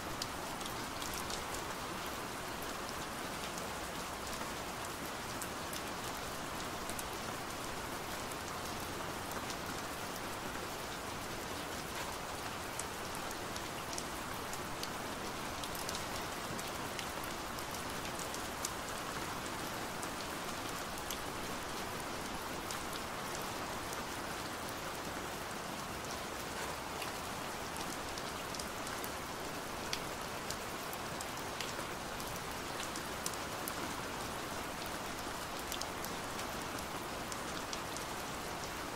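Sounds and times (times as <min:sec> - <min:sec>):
rain on a window pane: 0:00.0 - 0:38.9.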